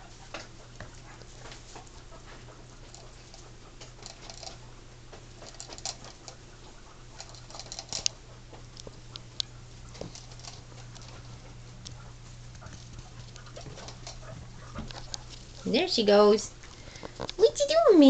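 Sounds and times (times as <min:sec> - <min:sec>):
faint low hum: 0:00.0 - 0:18.0
guinea pigs clicking and rustling: 0:00.0 - 0:18.0.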